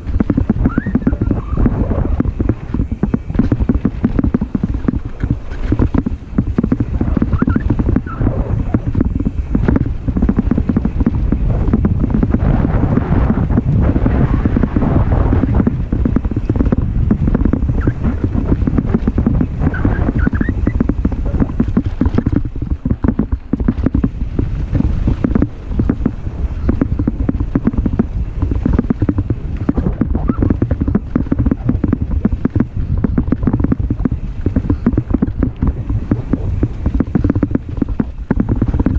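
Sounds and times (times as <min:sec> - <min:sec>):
mountain bike rattling: 0:00.0 - 0:38.9
tyres rumbling on dirt: 0:00.0 - 0:38.9
wind buffeting microphone: 0:00.0 - 0:38.9.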